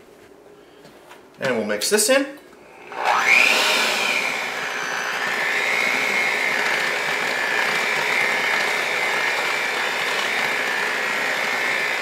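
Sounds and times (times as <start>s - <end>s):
electric hand mixer whining: 2.6s - 12.0s.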